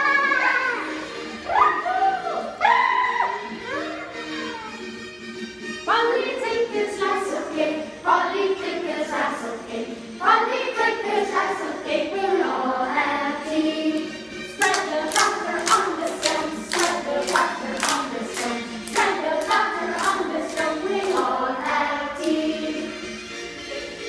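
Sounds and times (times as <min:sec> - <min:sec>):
children singing: 0:05.9 - 0:23.1
rhythmic hand clapping: 0:13.9 - 0:22.8.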